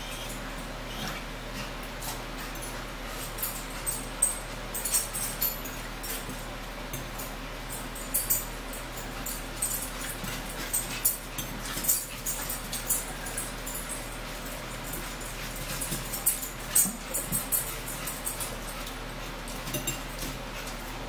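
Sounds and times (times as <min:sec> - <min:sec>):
steady low hum: 0:00.0 - 0:21.0
forks clinking on plates: 0:08.0 - 0:18.9, 0:19.5 - 0:20.7.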